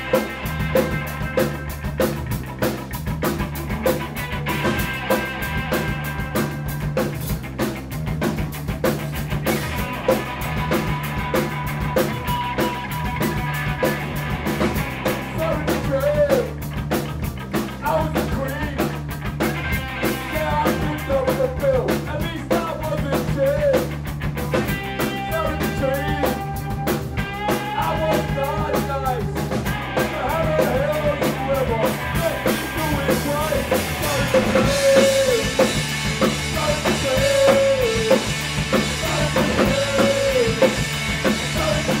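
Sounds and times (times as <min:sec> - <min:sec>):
drum kit steady beat: 0:00.0 - 0:42.0
electric guitars and bass: 0:00.0 - 0:42.0
person singing: 0:20.2 - 0:23.8, 0:25.2 - 0:42.0.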